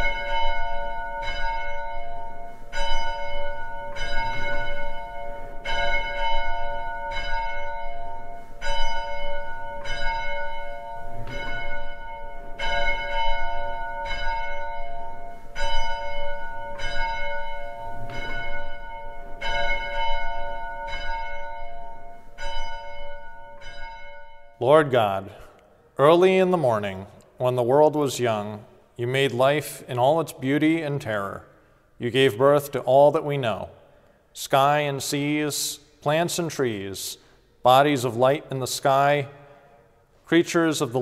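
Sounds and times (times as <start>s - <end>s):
church bell ringing: 0.0s - 25.5s.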